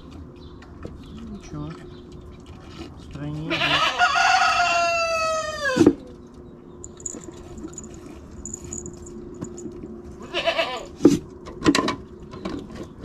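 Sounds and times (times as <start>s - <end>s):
goat bleating: 3.5s - 4.1s, 10.2s - 10.9s.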